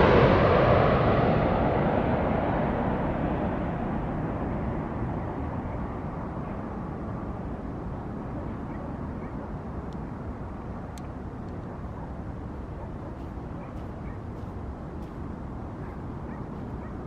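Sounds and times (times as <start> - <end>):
airplane engine noise: 0.0 - 17.0.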